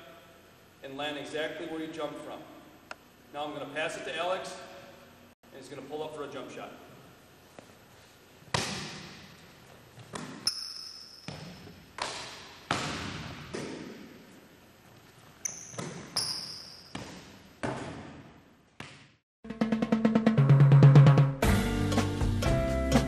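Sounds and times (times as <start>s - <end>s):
basketball bouncing on hardwood floor: 10.0s - 14.1s, 15.5s - 19.2s
shoe squeaks: 10.3s - 11.8s, 15.3s - 17.4s.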